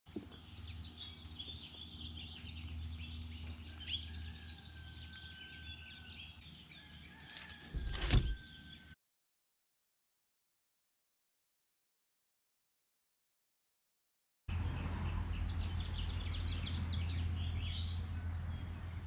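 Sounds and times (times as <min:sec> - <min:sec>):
birds chirping and singing: 0:00.1 - 0:09.0, 0:14.5 - 0:19.0.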